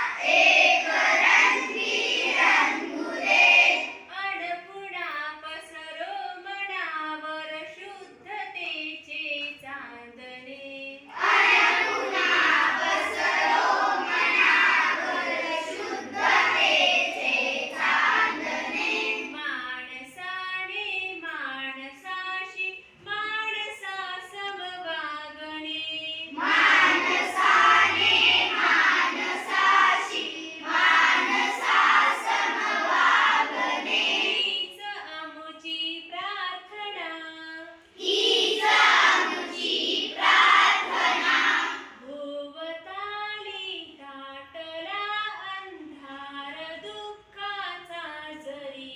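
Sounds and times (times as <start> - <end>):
children singing in unison: 0.0 - 4.1, 11.1 - 19.4, 26.3 - 34.8, 38.0 - 42.0.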